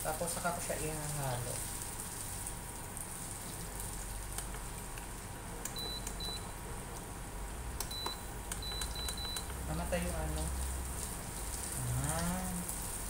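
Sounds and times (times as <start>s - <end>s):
food sizzling in a pan: 0.0s - 4.3s, 10.3s - 13.0s
cooktop control panel beeps: 5.7s - 6.6s, 7.8s - 9.6s.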